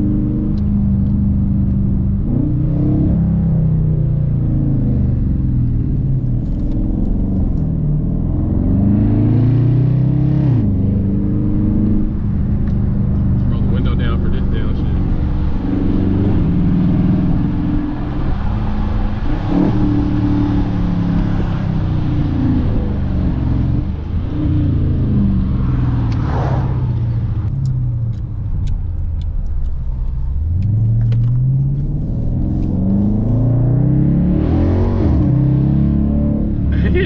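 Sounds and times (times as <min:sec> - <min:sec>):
car exhaust engine note: 0:10.6 - 0:33.7.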